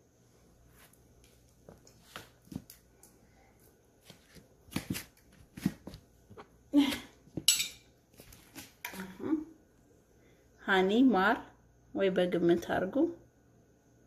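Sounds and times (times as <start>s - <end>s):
spoon clinking and scraping bowl: 7.4s - 7.8s.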